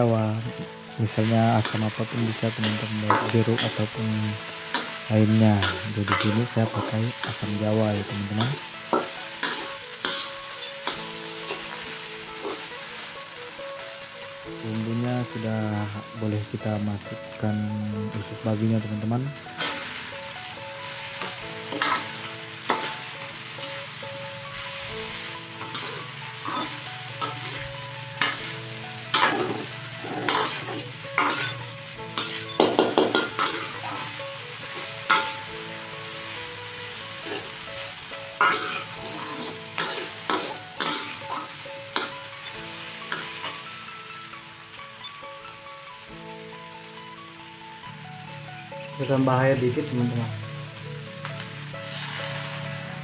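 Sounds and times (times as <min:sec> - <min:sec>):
offal sizzling in hot oil: 0:00.0 - 0:53.0
metal spatula scraping a wok: 0:01.6 - 0:13.4, 0:19.4 - 0:43.7, 0:51.8 - 0:53.0.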